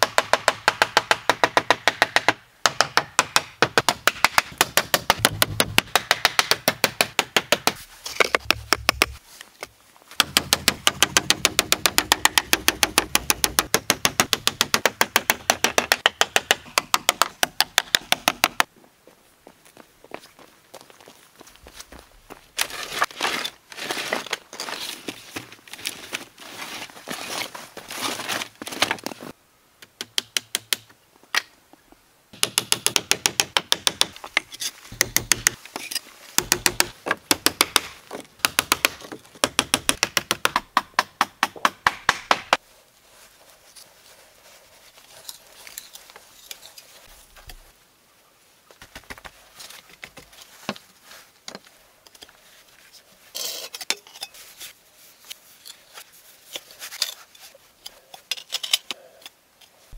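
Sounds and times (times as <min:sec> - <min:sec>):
hammering nails into wood: 0:00.0 - 0:07.8, 0:10.2 - 0:18.7, 0:32.4 - 0:34.2, 0:35.0 - 0:35.6, 0:36.4 - 0:42.6.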